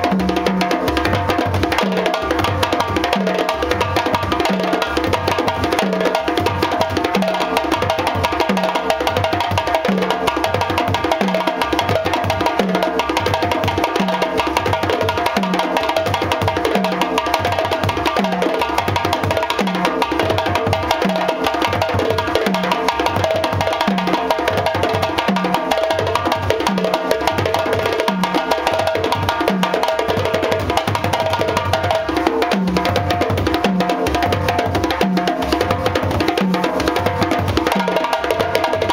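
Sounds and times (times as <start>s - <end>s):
djembe hand drumming: 0.0s - 38.9s.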